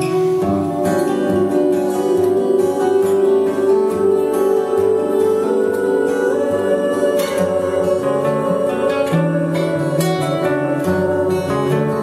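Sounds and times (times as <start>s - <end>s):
acoustic guitars playing: 0.0s - 12.0s.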